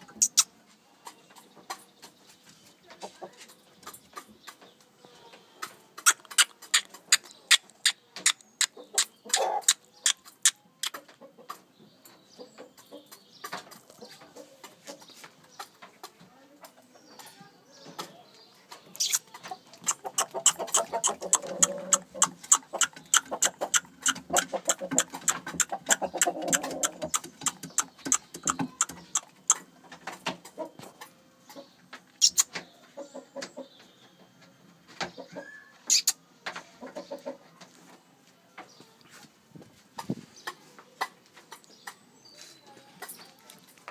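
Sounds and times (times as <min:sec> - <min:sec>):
rooster clucking: 0:05.6 - 0:11.5, 0:19.0 - 0:29.7, 0:31.5 - 0:33.6, 0:35.2 - 0:37.6
sharp clicks and knocks: 0:19.0 - 0:30.6
sharp ticks: 0:19.8 - 0:29.6.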